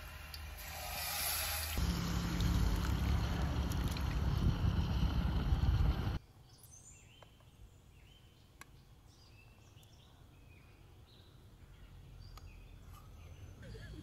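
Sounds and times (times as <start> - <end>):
loud low rushing rumble: 1.8 - 6.2.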